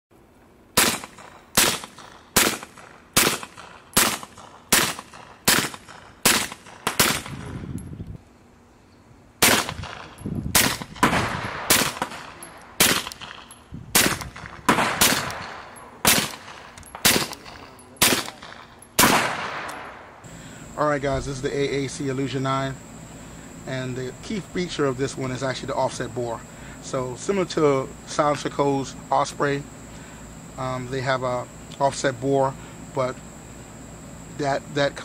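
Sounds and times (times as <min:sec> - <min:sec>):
suppressed pistol shots: 0:00.8 - 0:07.6, 0:09.4 - 0:20.1.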